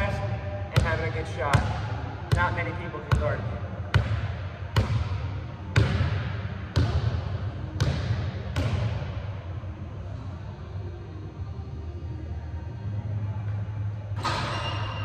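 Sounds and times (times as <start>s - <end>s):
basketball bouncing in a hall: 0.0s - 9.9s.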